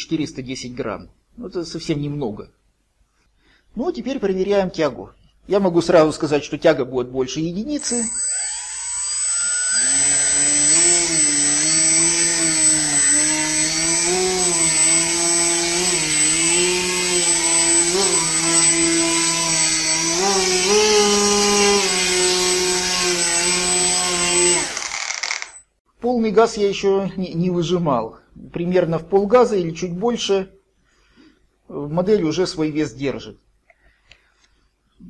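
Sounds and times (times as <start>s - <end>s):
thin high whine: 7.8s - 19.4s
electric motor and propeller running: 7.8s - 25.6s.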